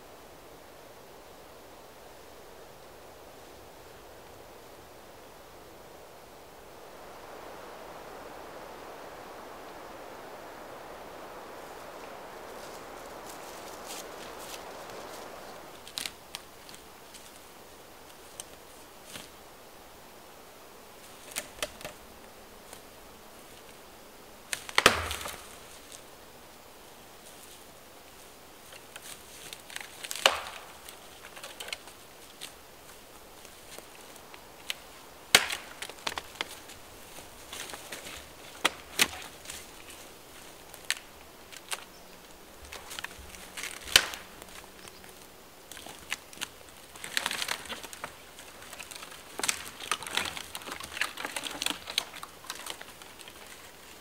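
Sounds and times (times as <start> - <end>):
twigs snapping: 10.5 - 19.4, 21.1 - 22.0, 24.5 - 26.1, 28.6 - 54.0
footsteps on forest floor: 11.6 - 17.5, 24.5 - 26.0, 27.2 - 54.0.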